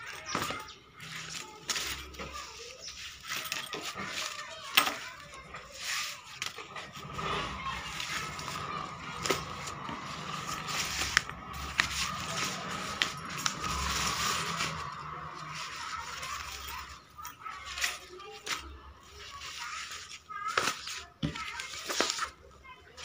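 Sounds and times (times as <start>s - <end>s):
fabric rustling: 0.0s - 23.0s
zipper clicks and clinks: 6.4s - 17.0s.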